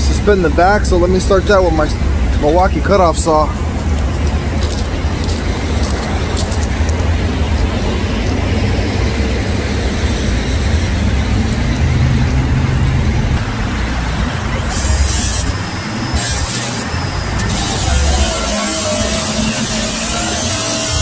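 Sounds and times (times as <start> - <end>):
heavy diesel truck engines: 0.0 - 21.0
air hiss: 14.6 - 21.0.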